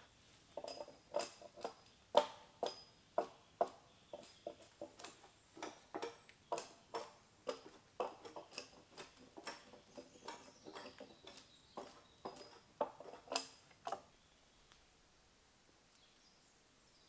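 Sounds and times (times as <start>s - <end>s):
hatchet striking wood: 1.1s - 14.0s.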